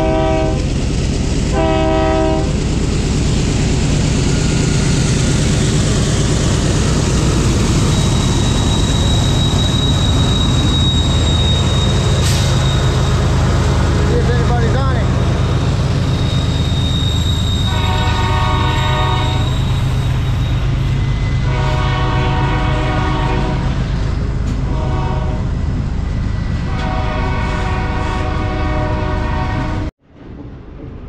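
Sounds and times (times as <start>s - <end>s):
locomotive air horn blasts: 0.0s - 0.7s, 1.5s - 2.6s, 17.6s - 19.5s, 21.4s - 23.8s, 24.6s - 25.5s, 26.7s - 29.8s
freight train rumbling past: 0.0s - 31.0s.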